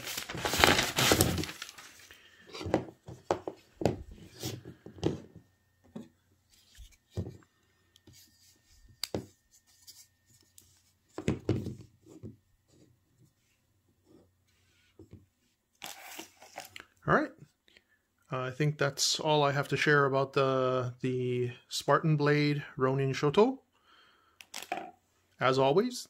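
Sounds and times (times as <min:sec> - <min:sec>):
paper rustling: 0:00.0 - 0:02.1.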